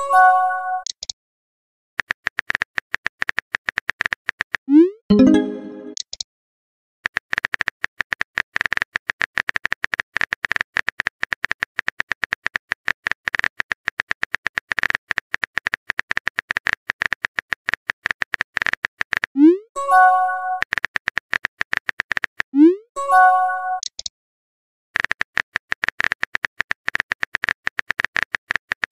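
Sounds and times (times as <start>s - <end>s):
messaging alert swoop and chime: 4.8s - 6.0s.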